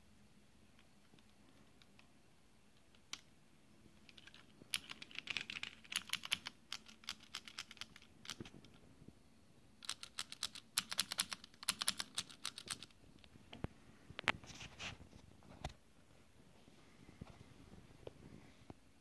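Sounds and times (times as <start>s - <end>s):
mechanical keyboard keys clicking: 4.1s - 8.5s, 9.8s - 13.0s.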